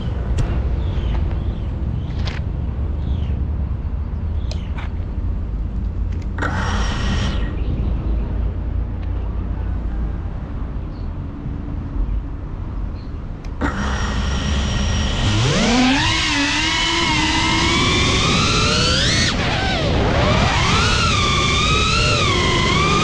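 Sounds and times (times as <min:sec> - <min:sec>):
prop wash rumble: 0:05.0 - 0:23.0
drone motors whining: 0:06.1 - 0:08.0, 0:13.5 - 0:23.0.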